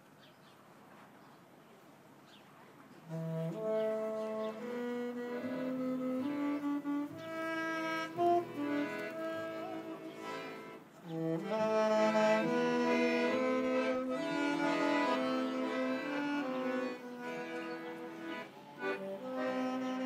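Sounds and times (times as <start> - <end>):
small orchestra playing held chords: 3.2 - 20.0.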